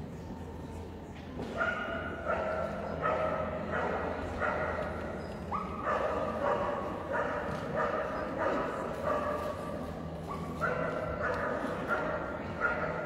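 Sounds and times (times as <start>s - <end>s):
dog barking: 1.6s - 4.9s, 5.5s - 9.5s, 10.3s - 13.0s.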